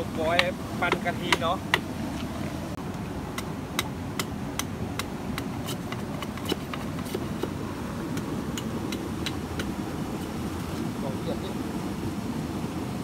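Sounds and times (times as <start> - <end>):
knife chopping wood: 3.4 - 9.8.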